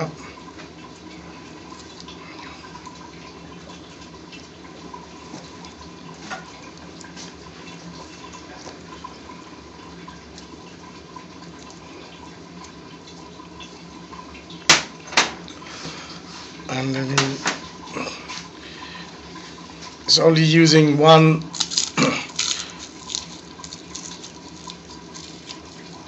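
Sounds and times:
garlic crackling: 21.4s - 26.0s.

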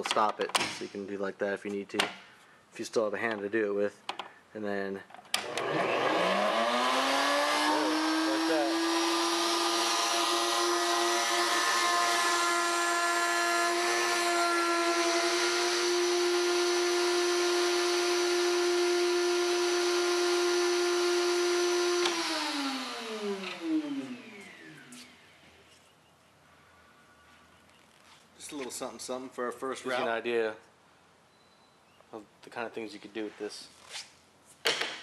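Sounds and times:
router motor whining: 5.4s - 25.3s.

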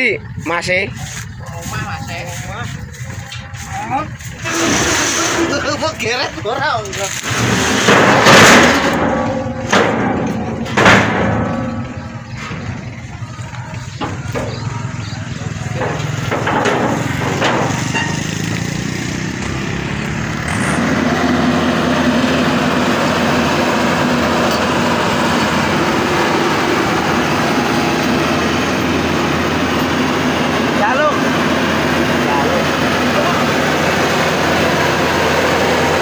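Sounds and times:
combine harvester engine running: 0.0s - 36.0s
sharp knocks: 7.3s - 12.0s, 15.7s - 18.5s.

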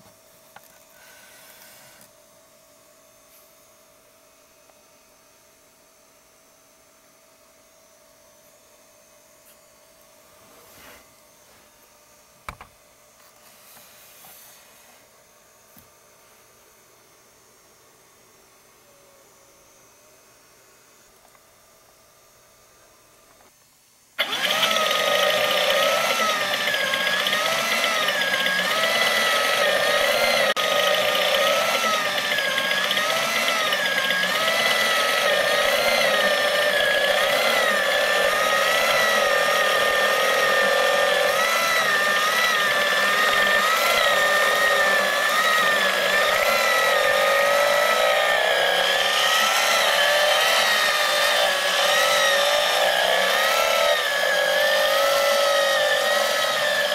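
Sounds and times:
small electric motor whirring: 0.0s - 2.2s, 24.2s - 56.9s.

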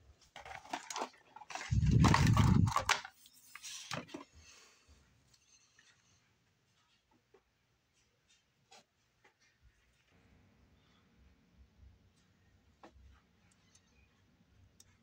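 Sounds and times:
card and plastic rustling: 0.2s - 4.4s
loud plastic scrape: 0.4s - 4.2s.

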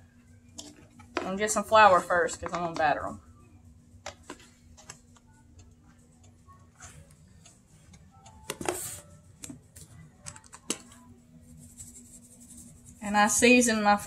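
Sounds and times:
faint clicks and handling noises: 3.9s - 12.0s.

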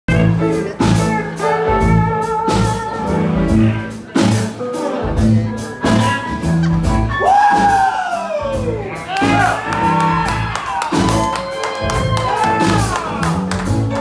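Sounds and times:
live band playing: 0.1s - 14.0s
drum kit hits: 5.2s - 11.3s.

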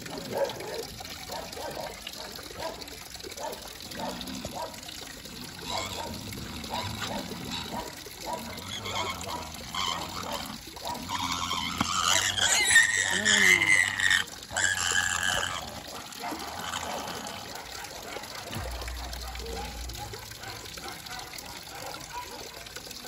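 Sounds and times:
tap water running into basin: 0.0s - 23.0s
water splashing: 0.0s - 23.0s
pig grunting: 3.9s - 21.0s
pig squealing loudly: 5.6s - 17.6s.

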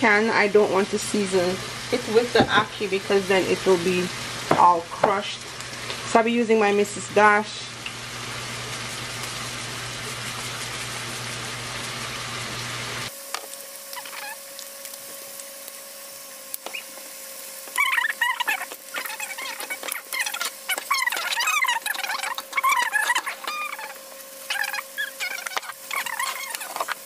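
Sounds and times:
chickpeas sizzling in a pot: 0.5s - 27.0s
high-pitched chirps and squeaks: 13.9s - 14.4s, 16.6s - 17.0s, 17.8s - 27.0s.

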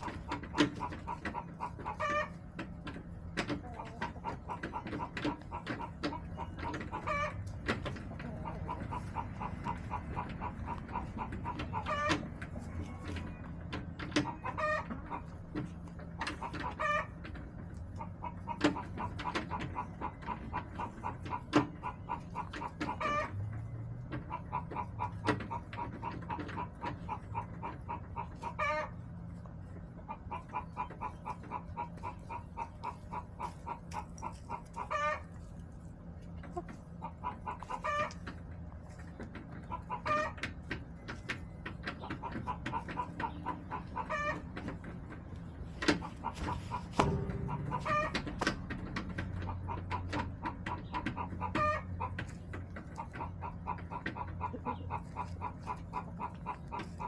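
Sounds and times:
drawn-out hen call: 0.0s - 57.0s
hens clucking: 0.0s - 57.0s
sharp knocks: 45.8s - 51.2s.

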